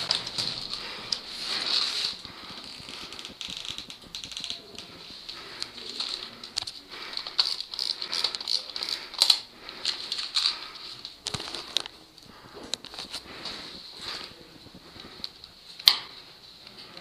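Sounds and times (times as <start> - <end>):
gear rattling: 5.9 - 9.4.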